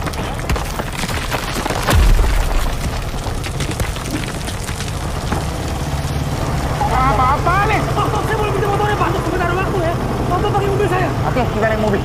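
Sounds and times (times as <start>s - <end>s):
sharp cracks and knocks: 0.0s - 6.8s
deep boom: 1.9s - 5.4s
low rumble: 1.9s - 8.2s.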